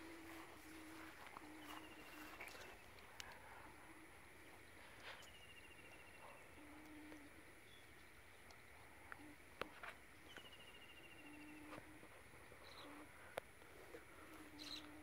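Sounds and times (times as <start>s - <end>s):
bird trilling: 14.5s - 15.0s.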